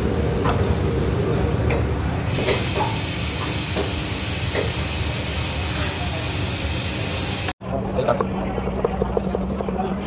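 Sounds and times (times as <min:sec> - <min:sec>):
kitchen hiss: 0:02.3 - 0:07.6.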